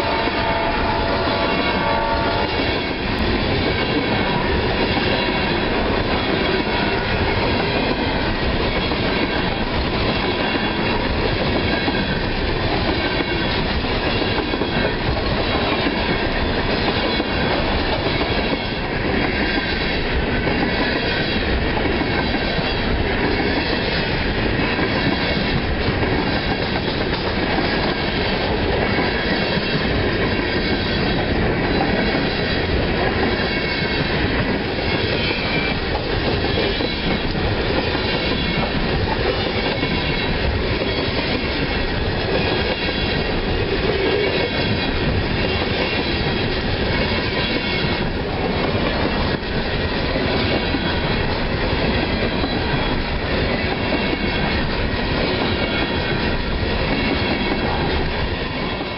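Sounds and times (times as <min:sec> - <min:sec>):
train wheels clattering over rails: 0:00.0 - 0:58.9.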